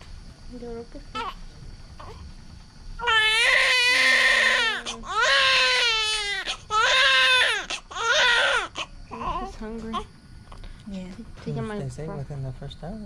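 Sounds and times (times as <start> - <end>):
newborn baby crying: 1.1 - 1.4, 3.0 - 10.0.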